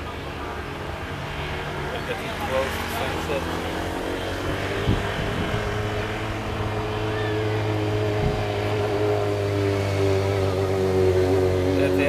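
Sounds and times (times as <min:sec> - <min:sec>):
distant engine droning: 0:00.0 - 0:12.0.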